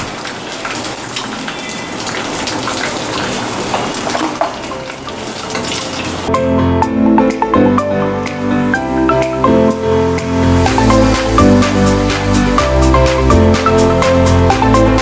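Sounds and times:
oil sizzling and crackling: 0.0 - 6.3, 9.7 - 14.2
background music with mallet notes: 4.6 - 15.0.

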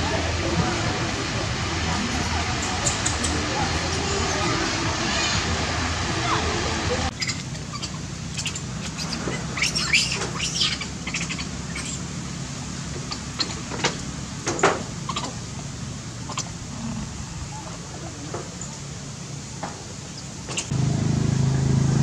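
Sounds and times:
steady low hum: 0.0 - 22.0
high animal chirps and squeaks: 7.1 - 12.0, 15.0 - 15.4, 16.2 - 17.8.

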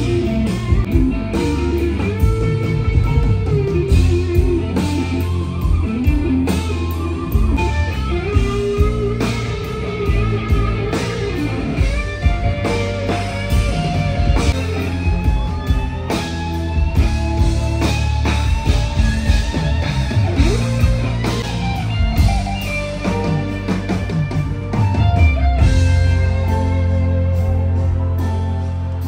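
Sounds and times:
live rock band music: 0.0 - 29.0.

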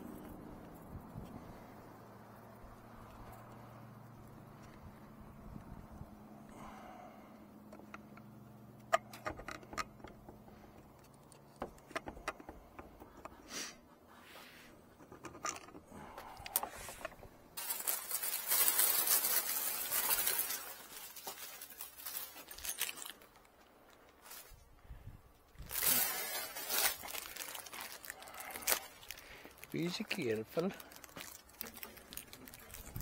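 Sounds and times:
clicks of handling metal parts: 15.0 - 17.3
plastic bag crinkling: 16.3 - 24.6, 25.6 - 33.0.

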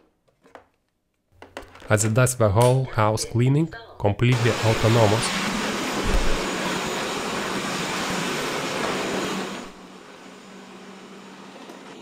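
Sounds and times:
robot vacuum cleaner running: 4.3 - 12.0.

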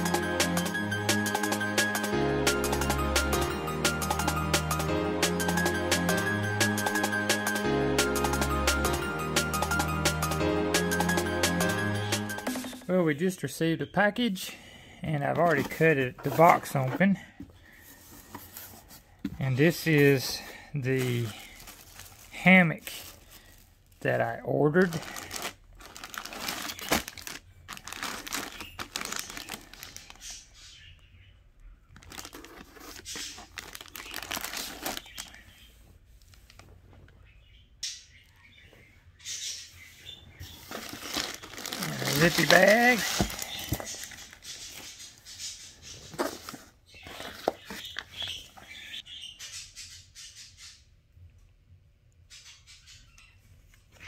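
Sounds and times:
plastic bag crinkling: 19.5 - 30.4, 31.9 - 35.5, 40.5 - 45.0
nylon sacks rustling: 40.6 - 44.2.

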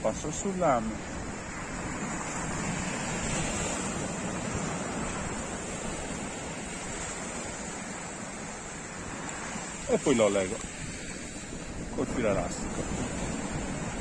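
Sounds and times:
surf washing onto beach: 0.0 - 14.0
wind rumbling on microphone: 0.0 - 14.0.

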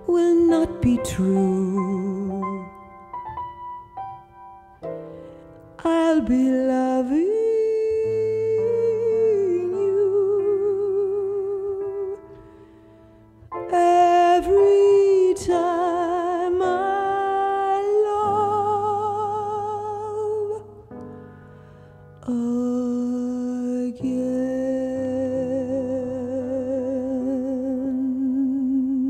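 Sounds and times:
woman singing with vibrato: 0.0 - 2.8, 5.8 - 12.2, 13.7 - 20.6, 22.2 - 29.0
soft backing track: 0.0 - 29.0.

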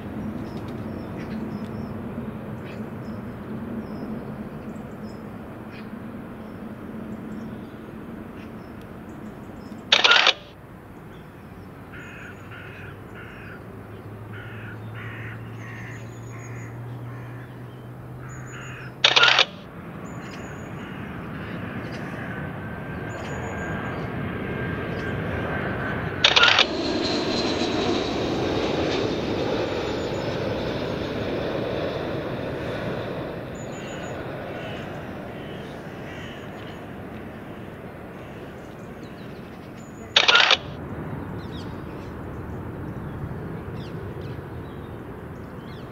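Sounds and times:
birds calling: 0.0 - 45.9
brief loud bursts: 40.2 - 40.8.

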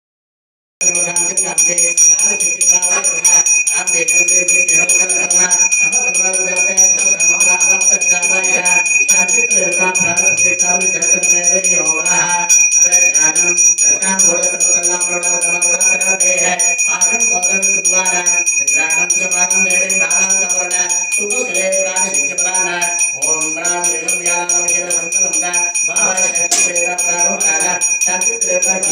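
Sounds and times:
temple bell ringing rapidly: 0.8 - 28.9
devotional music with singing: 20.1 - 28.9.

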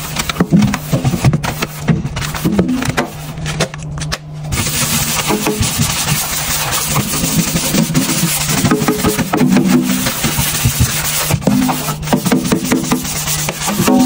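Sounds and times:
steady low hum: 0.0 - 14.0
brush scrubbing steel sink: 4.5 - 14.0.

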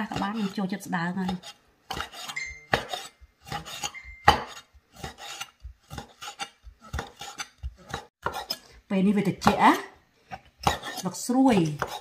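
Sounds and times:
cleaver chopping on wooden board: 1.2 - 8.4, 11.6 - 12.0.

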